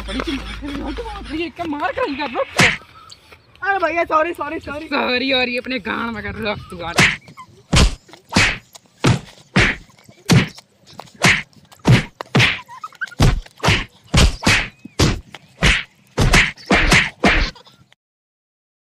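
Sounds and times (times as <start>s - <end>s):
punch and kick thwacks: 2.6s - 2.8s, 7.0s - 10.6s, 11.2s - 12.6s, 13.2s - 17.6s.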